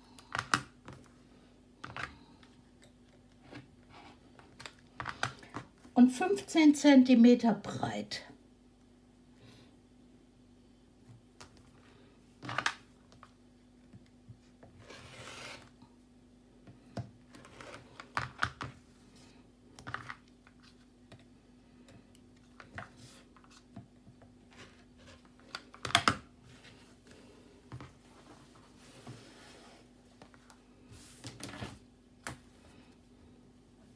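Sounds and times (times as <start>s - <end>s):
faint steady hum: 0.0s - 33.9s.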